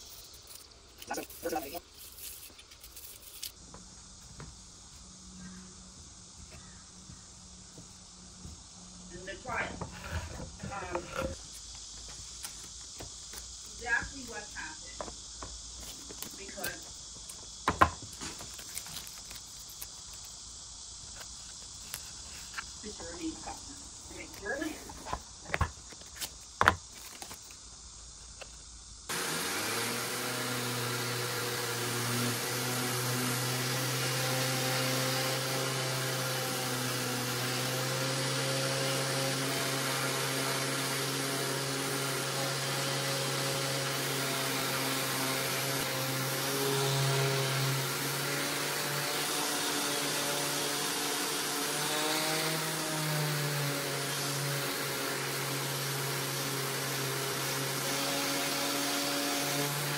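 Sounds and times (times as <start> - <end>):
orbital sander whirring on wood: 0.5 - 3.5, 9.1 - 11.5, 29.1 - 59.9.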